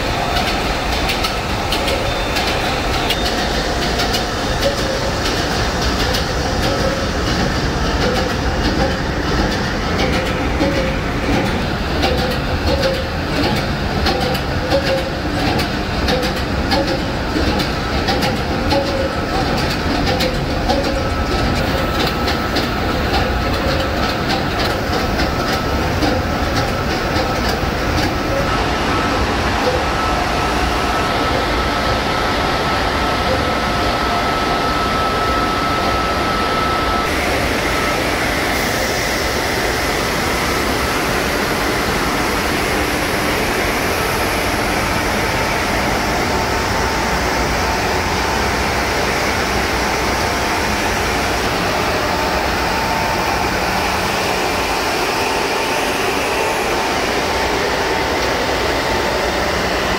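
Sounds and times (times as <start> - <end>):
engine room machinery din: 0.0 - 59.9.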